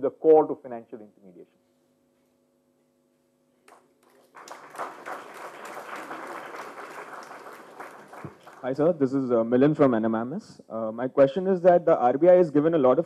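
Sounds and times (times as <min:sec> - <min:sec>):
audience applauding: 0:03.7 - 0:09.0.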